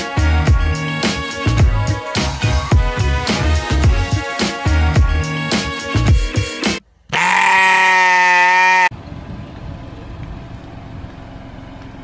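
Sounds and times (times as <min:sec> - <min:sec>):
music: 0:00.0 - 0:06.8
loud sustained cry: 0:07.1 - 0:08.9.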